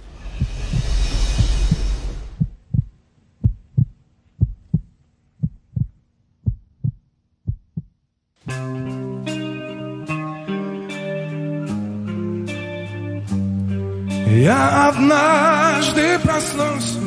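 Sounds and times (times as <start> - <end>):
rushing swell: 0.0 - 2.8
heartbeat thuds: 0.2 - 8.0.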